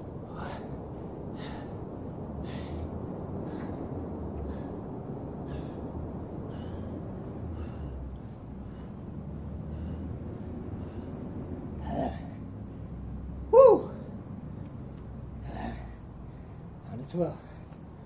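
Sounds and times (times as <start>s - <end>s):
man breathing hard: 0.2s - 12.8s.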